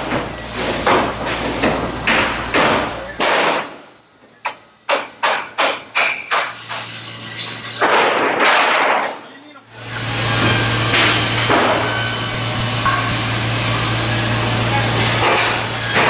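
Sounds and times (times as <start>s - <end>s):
hammer striking steel: 4.4s - 6.9s, 12.8s - 13.3s, 15.0s - 16.0s
rough noisy bursts: 5.9s - 16.0s.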